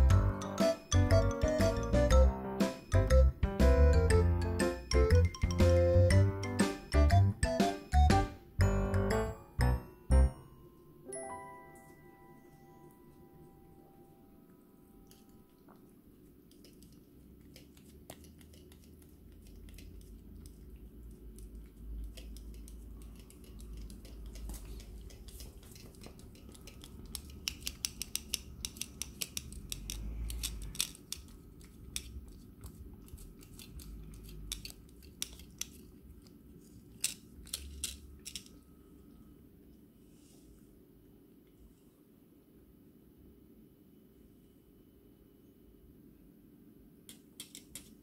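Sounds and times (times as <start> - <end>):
cat tongue licking clicks: 16.5 - 30.6.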